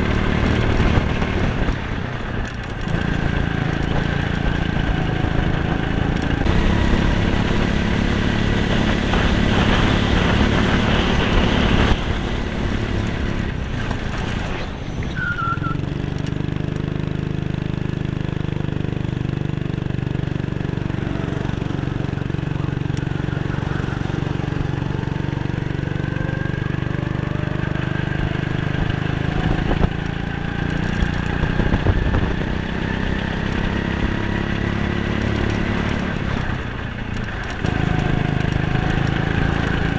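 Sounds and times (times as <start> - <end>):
go-kart engine: 0.0 - 39.9
brief high squeal: 14.8 - 15.8.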